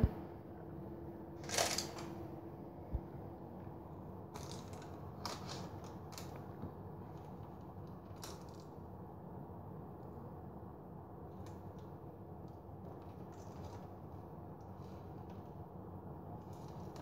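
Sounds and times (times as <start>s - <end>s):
low steady hum: 0.0s - 17.0s
bread crackling on baking tray: 1.4s - 2.2s, 4.3s - 8.8s.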